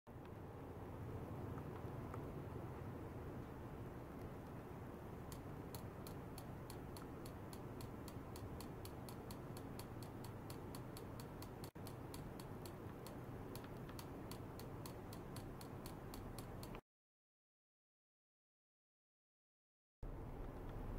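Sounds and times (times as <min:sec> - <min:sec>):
steady low hum: 0:00.1 - 0:16.8
rapid sharp clicking: 0:05.2 - 0:16.8.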